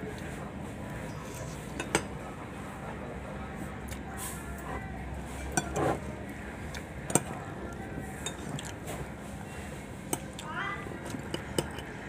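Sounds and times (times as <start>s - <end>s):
cutlery clinking on plates: 1.8s - 2.1s, 11.1s - 11.9s.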